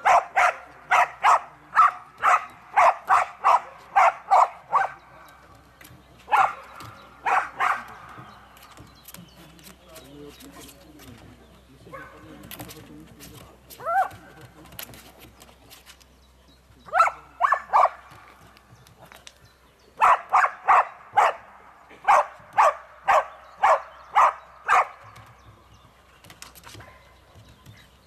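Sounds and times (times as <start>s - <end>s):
dog barking: 0.0s - 5.0s, 6.3s - 7.9s, 11.9s - 12.3s, 16.9s - 18.0s, 20.0s - 25.0s.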